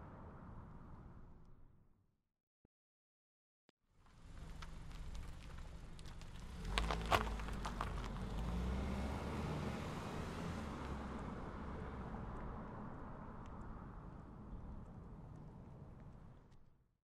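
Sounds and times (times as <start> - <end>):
road noise: 4.0 - 16.8
car engine rumble: 4.1 - 16.7.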